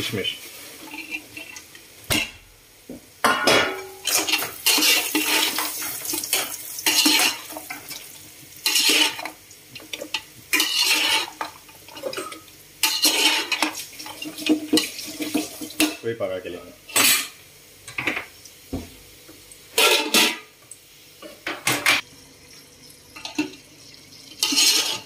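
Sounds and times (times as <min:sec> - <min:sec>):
metal spatula scraping a pot: 0:00.7 - 0:01.6, 0:03.9 - 0:07.9, 0:08.6 - 0:16.0, 0:19.8 - 0:20.5, 0:24.3 - 0:25.0.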